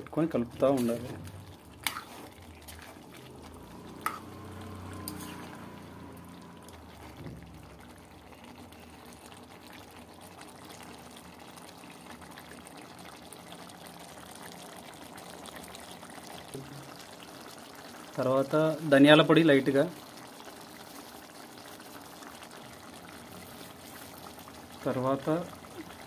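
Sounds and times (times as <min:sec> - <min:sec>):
curry sloshing and simmering: 0:00.0 - 0:26.0.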